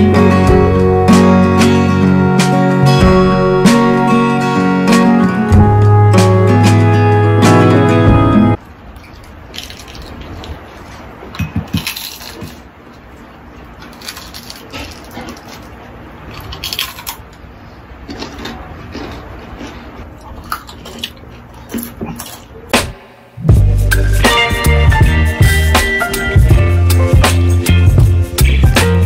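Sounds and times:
crunchy food chewing: 0:08.6 - 0:22.7.

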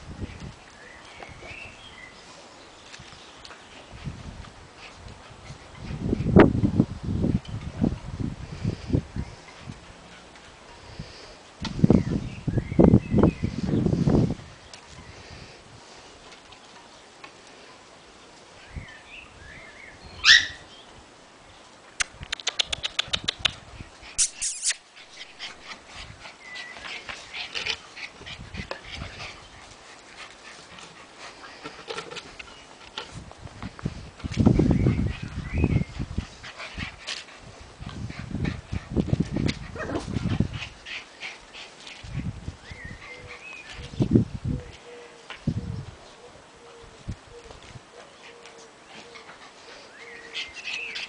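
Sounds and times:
puppy yelping: 0:20.2 - 0:20.6, 0:24.2 - 0:24.8
puppies yipping and squealing: 0:20.2 - 0:20.7, 0:24.2 - 0:29.8, 0:48.2 - 0:51.0
puppies whimpering and yipping: 0:24.2 - 0:25.7, 0:47.4 - 0:51.0.

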